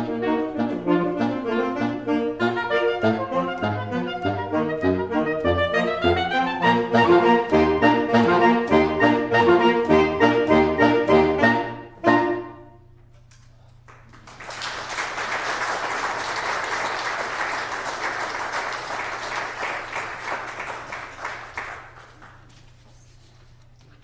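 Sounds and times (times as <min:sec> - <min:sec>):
saxophone quartet chord: 0:00.0 - 0:13.0
audience applauding: 0:13.8 - 0:22.7.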